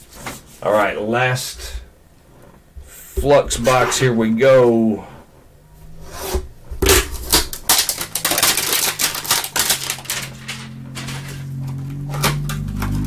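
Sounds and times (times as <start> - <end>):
plastic wrap and cardboard ripping: 6.8 - 13.0.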